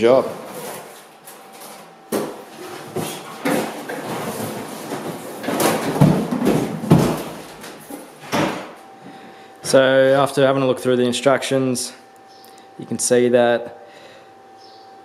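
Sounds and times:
cardboard rubbing and rustling: 2.5 - 8.0
dull thumps: 3.4 - 8.8.

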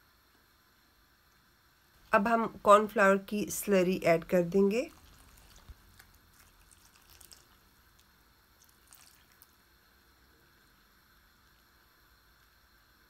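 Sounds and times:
faint drips: 4.9 - 9.6.

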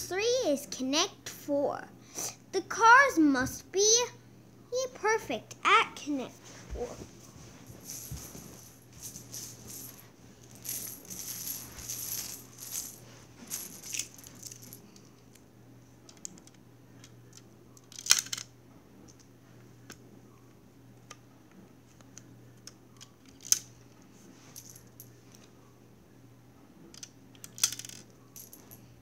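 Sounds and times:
plastic discs rattling: 9.0 - 14.8.

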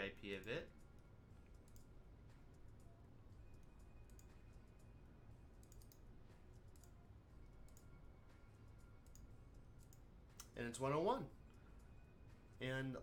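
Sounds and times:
low room hum: 0.0 - 13.0
computer mouse clicks: 0.9 - 1.9, 3.6 - 4.3, 5.6 - 7.0, 7.6 - 7.9, 9.0 - 10.6.

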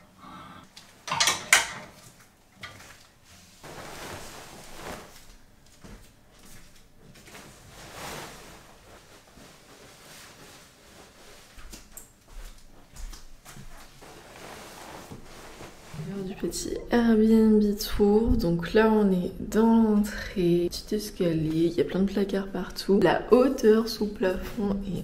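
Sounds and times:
fabric rustling: 2.8 - 17.1.

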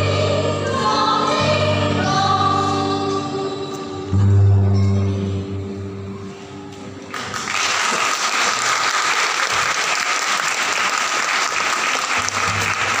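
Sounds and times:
choir singing: 0.0 - 4.5
audience applauding: 7.1 - 13.0.

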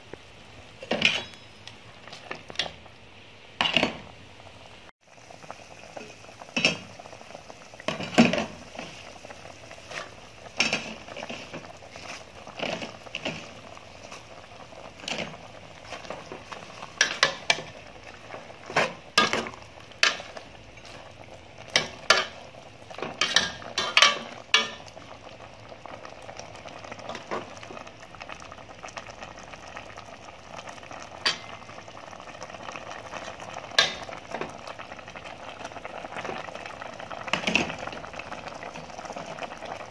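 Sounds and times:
soup bubbling: 0.0 - 39.9.

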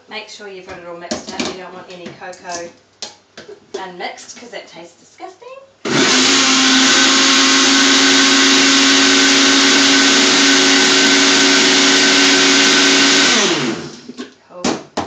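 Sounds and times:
blender motor running: 5.8 - 14.1
blender motor winding down: 5.8 - 14.1.

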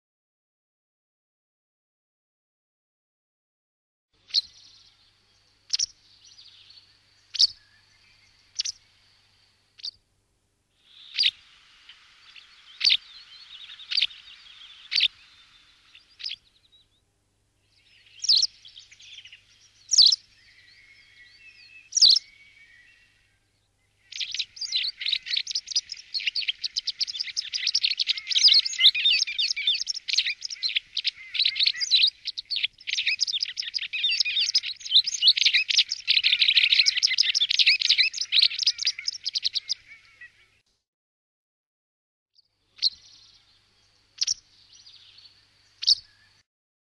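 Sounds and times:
fast twittering bird song: 4.2 - 10.0, 10.8 - 40.6, 42.6 - 46.4
wagtail calling: 4.3 - 9.1, 9.8 - 10.0, 10.8 - 16.8, 17.7 - 23.3, 23.9 - 40.6, 42.7 - 46.4.

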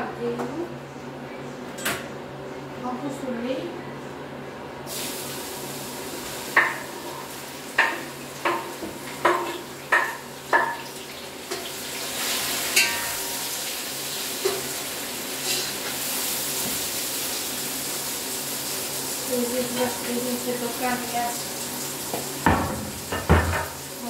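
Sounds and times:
tap water running: 4.9 - 24.0
dishes clinking: 12.7 - 13.5.

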